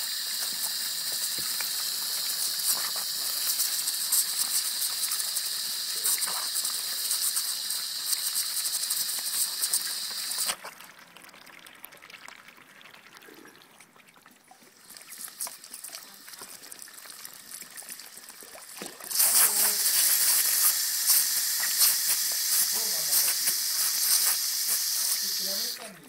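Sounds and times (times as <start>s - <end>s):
hose spray hissing: 0.0s - 10.6s, 19.1s - 26.0s
water dripping: 10.0s - 19.8s.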